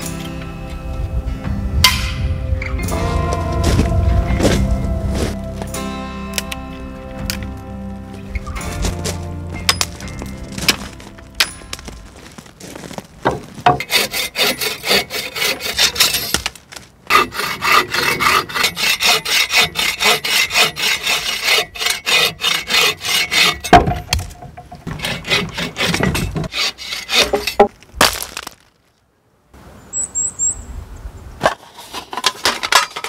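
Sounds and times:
saw cutting log: 13.7s - 16.5s, 17.1s - 24.2s, 24.8s - 27.7s.

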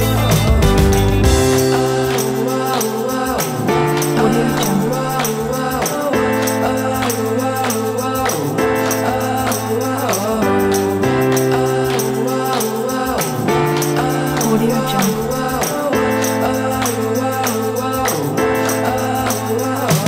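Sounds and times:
steady percussion beat: 0.0s - 20.0s.

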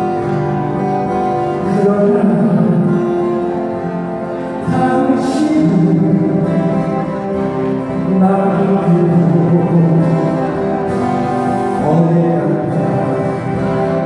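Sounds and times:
strummed acoustic guitars: 0.0s - 14.0s
person singing long notes: 4.5s - 10.9s.

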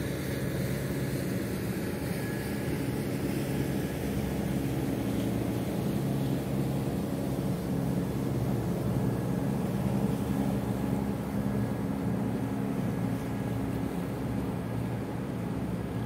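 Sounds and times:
boat engine humming: 0.0s - 16.0s.

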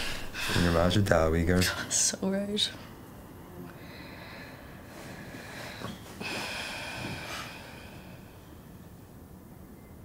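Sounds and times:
person exhaling heavily: 5.2s - 8.4s.

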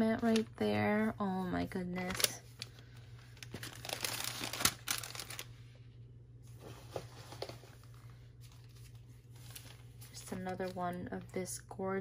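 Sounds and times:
plastic packaging crinkling: 2.0s - 5.6s, 7.2s - 11.0s.

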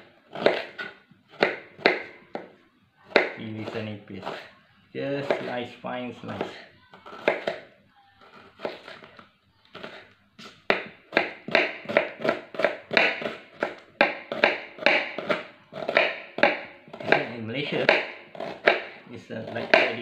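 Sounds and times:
knife slicing on cutting board: 0.3s - 2.1s, 3.2s - 4.5s, 8.3s - 9.1s.

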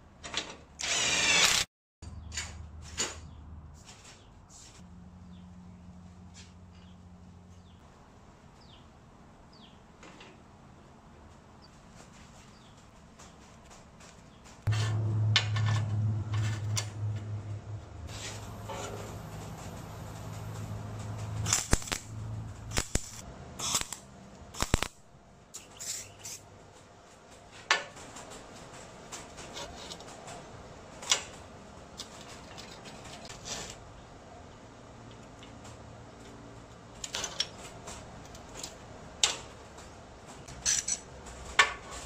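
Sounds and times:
welder electrical hum: 0.8s - 1.7s, 14.7s - 26.4s
welding arc crackling: 18.1s - 26.4s
metal clamps clicking and clanking: 40.5s - 42.0s.

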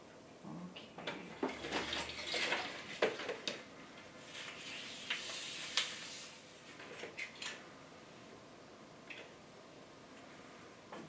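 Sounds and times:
plastic rustling: 1.2s - 7.6s.

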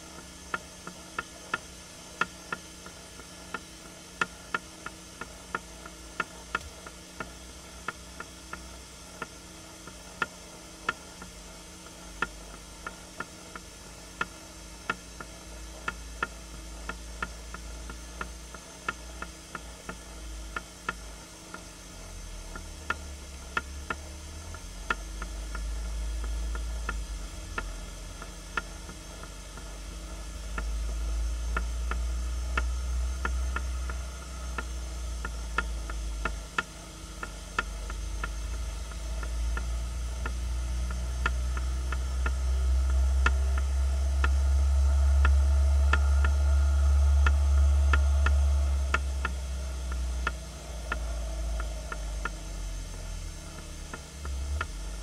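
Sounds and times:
faint hiss and hum: 0.0s - 55.0s
low rumble: 21.8s - 55.0s
sharp ticking clicks: 30.4s - 54.9s.

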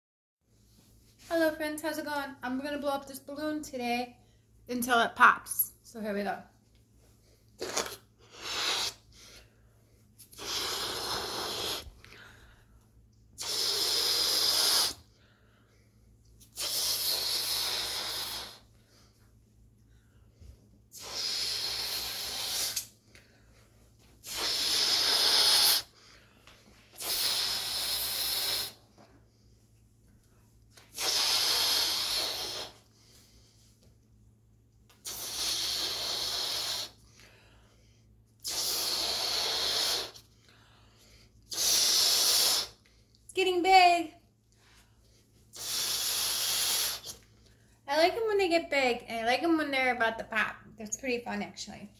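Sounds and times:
person blowing into a balloon: 7.6s - 9.4s, 10.3s - 12.1s, 13.4s - 15.1s, 16.4s - 18.7s, 20.9s - 23.0s, 24.2s - 26.1s, 27.0s - 28.9s, 30.9s - 32.9s, 35.0s - 37.0s, 38.4s - 40.3s, 41.5s - 42.8s, 45.5s - 47.3s.

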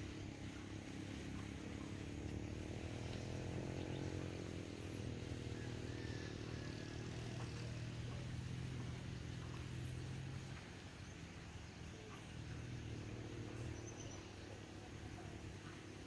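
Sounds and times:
engine running steadily: 0.0s - 16.0s.

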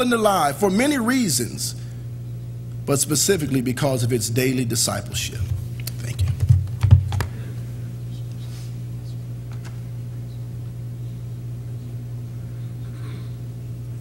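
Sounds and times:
steady low hum: 0.0s - 14.0s
book and papers knocking on wood: 6.1s - 7.3s.

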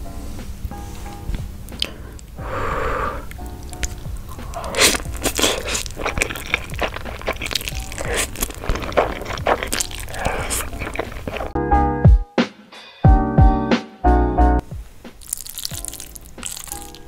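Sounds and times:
background music: 0.0s - 17.0s
mouth clicks: 1.7s - 2.4s, 3.1s - 11.6s
slurping noodles: 1.8s - 11.6s.

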